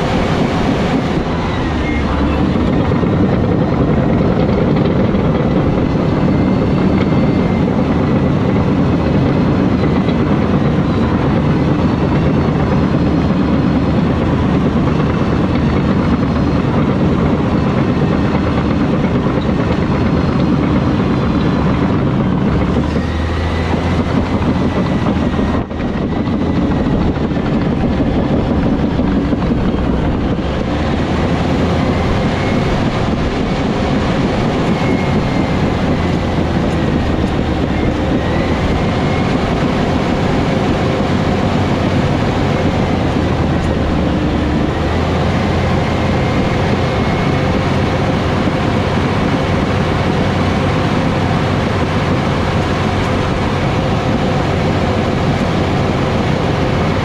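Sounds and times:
bulldozer diesel engine drone: 0.0 - 57.0.

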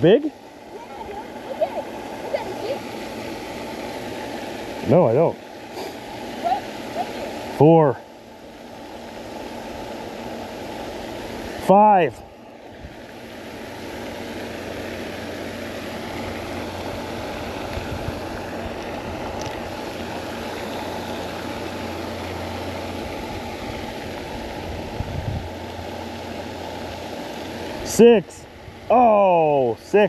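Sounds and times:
steady rushing noise: 0.0 - 30.0.

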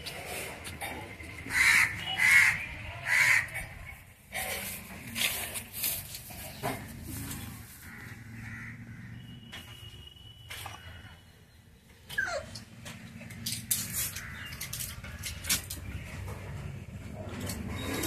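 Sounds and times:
crow cawing: 1.5 - 3.6, 7.8 - 9.4, 14.1 - 14.6.

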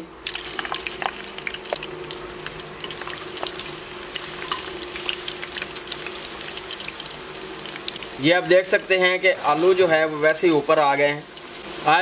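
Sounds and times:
wire skimmer stirring: 0.2 - 8.1
potato slices sizzling in oil: 0.2 - 12.0.

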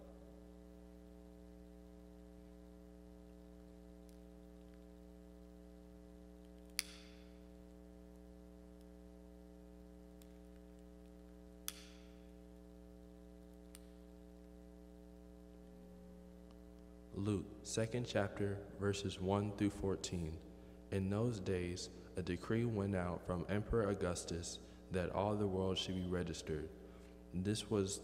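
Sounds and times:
electrical mains hum: 0.0 - 28.0
sharp clicks: 6.5 - 7.3.

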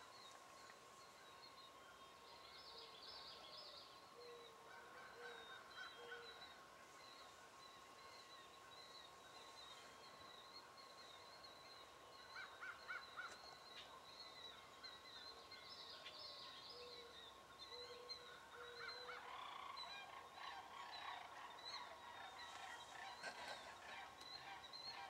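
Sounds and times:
turkeys calling softly: 17.9 - 25.0.

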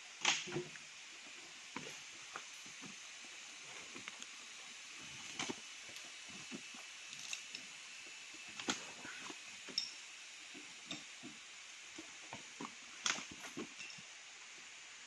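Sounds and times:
faint high-pitched hiss: 0.0 - 15.0
metal chain clinking: 7.1 - 7.7, 9.7 - 10.0, 13.3 - 14.1.

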